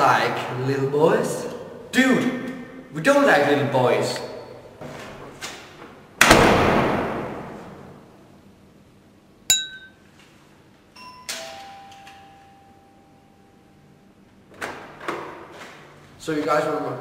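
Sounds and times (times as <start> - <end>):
door slamming: 6.2 - 7.8
metallic click with ringing: 9.5 - 10.0, 11.0 - 12.7
two-note doorbell chime: 11.0 - 13.8.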